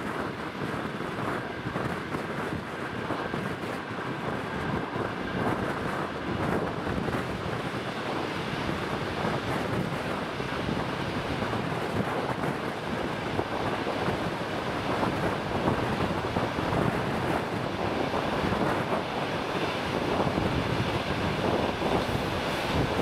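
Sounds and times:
train wheels rushing on rails: 0.0 - 23.0
wind buffeting microphone: 0.0 - 23.0.

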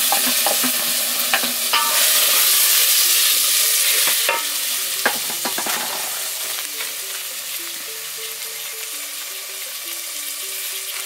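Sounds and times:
tomatoes sizzling in oil: 0.0 - 11.0
quiet background tune: 0.2 - 11.0
knocks on pot: 5.1 - 6.1.

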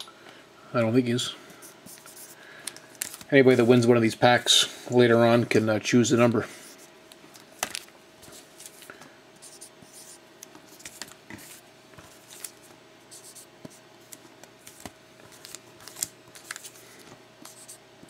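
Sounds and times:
card packs tapping and rustling: 7.6 - 7.9.

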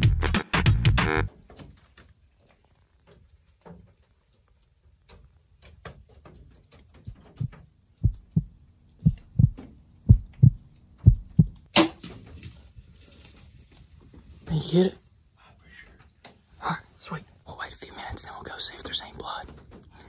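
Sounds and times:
heartbeat thumps: 7.1 - 11.7
bow release crack: 11.7 - 12.2.

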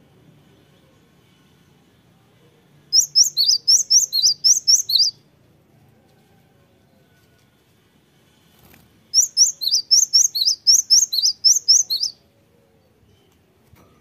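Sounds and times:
bird whistling rising notes: 3.0 - 5.2, 9.2 - 12.2.

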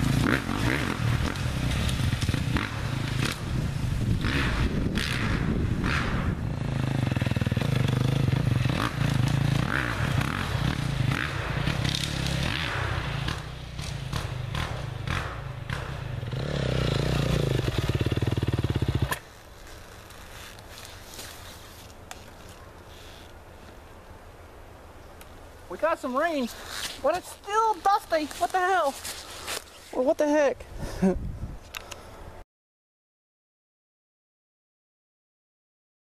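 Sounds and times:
dirt bike engine revving: 0.0 - 19.2.

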